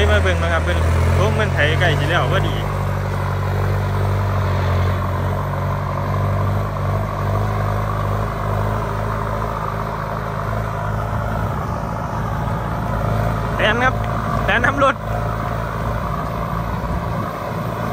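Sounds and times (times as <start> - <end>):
tractor diesel engine droning: 0.0 - 17.9.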